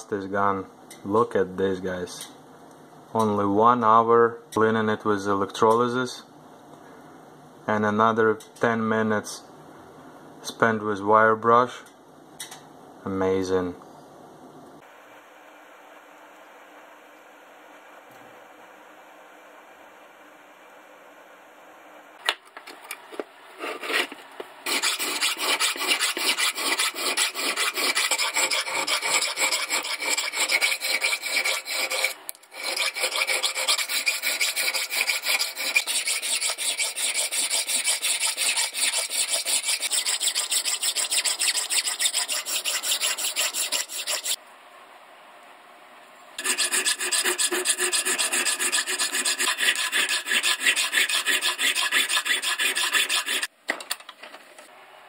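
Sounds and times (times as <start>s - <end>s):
hand file rasping on steel: 24.7s - 44.4s, 46.4s - 53.5s.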